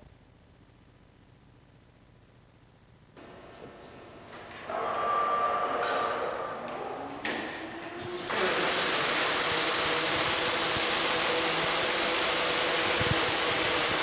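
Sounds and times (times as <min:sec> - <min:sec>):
welding arcs striking: 0:08.2 - 0:14.0
steady welding hiss: 0:08.3 - 0:14.0.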